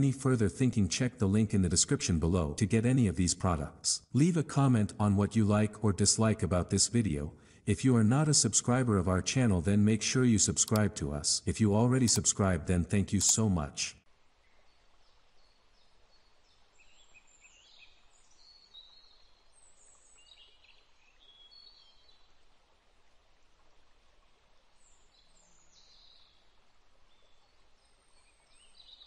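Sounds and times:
low hiss: 0.0 - 29.0
faint birdsong: 14.3 - 22.5, 24.8 - 29.0.

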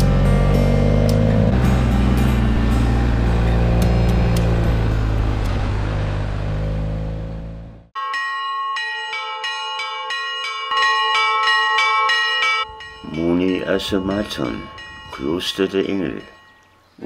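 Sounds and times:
background music: 0.0 - 5.5
motorcycle engine running: 0.0 - 7.9
bells pealing rapidly: 8.0 - 16.8.

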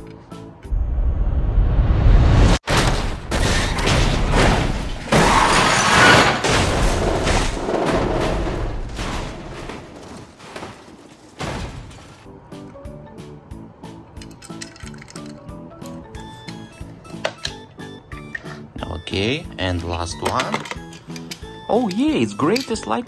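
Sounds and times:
music: 0.0 - 0.8, 12.3 - 23.0
heavy low rumble: 0.7 - 2.6.

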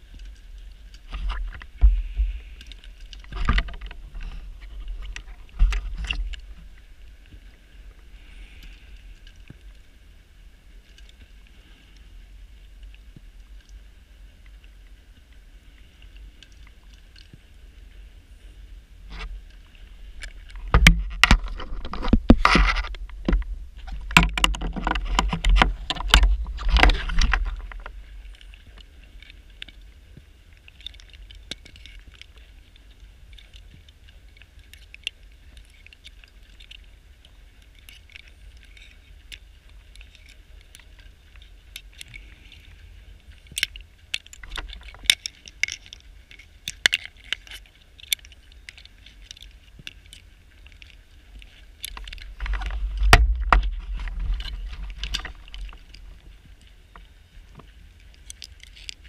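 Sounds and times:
faint underwater crackling: 0.0 - 59.0
underwater bubbles rumbling: 18.7 - 29.9, 51.9 - 57.7.

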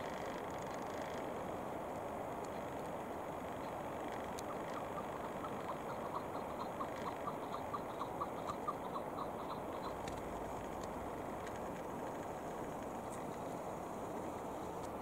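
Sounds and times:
faint clicks: 0.0 - 1.3, 1.9 - 15.0
background hiss: 0.0 - 15.0
partridge clucking call: 4.4 - 10.8.

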